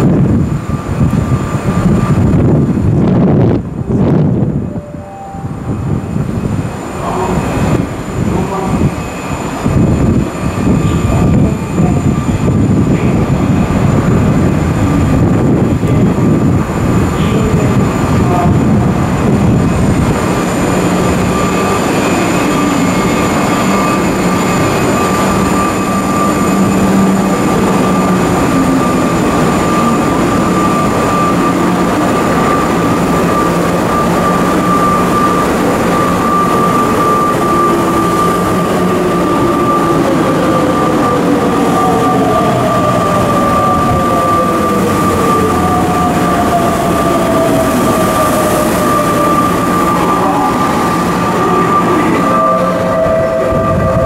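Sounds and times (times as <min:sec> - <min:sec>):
electric train humming and whining: 0:00.0 - 0:54.0
tones sliding downward: 0:03.9 - 0:06.4.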